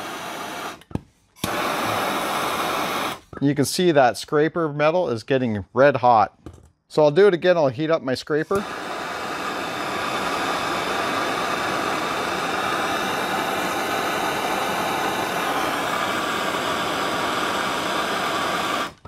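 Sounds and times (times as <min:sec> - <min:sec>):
gas torch hissing: 0:00.0 - 0:03.3, 0:08.4 - 0:19.0.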